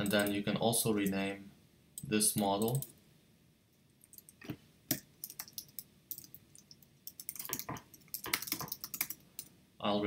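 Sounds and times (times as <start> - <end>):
computer keyboard keystrokes: 4.1 - 9.5.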